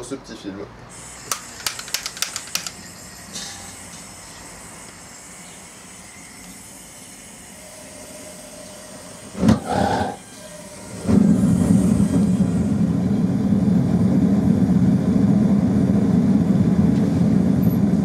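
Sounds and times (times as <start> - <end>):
blowtorch igniter clicks: 1.3 - 2.8
blowtorch hissing: 3.8 - 13.4.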